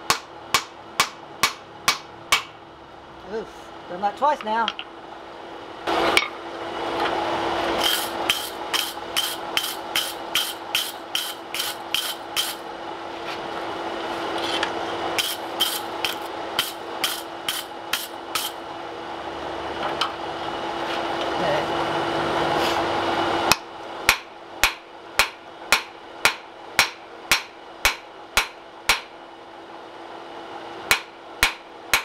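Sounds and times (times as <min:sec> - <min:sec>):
hammer striking steel on anvil: 0:00.0 - 0:02.5, 0:23.5 - 0:29.1, 0:30.9 - 0:32.0
steady hum: 0:00.0 - 0:32.0.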